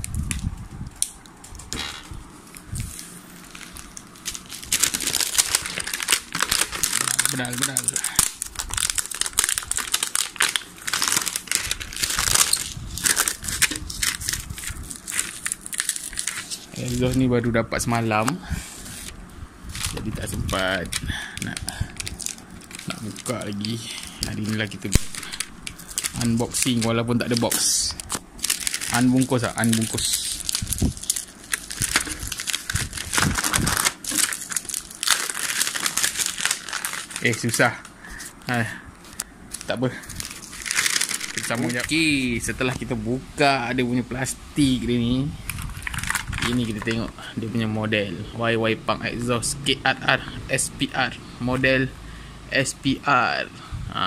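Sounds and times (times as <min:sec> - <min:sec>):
bubble wrap crinkling: 0:00.0 - 0:17.3, 0:18.7 - 0:43.0, 0:45.4 - 0:47.2.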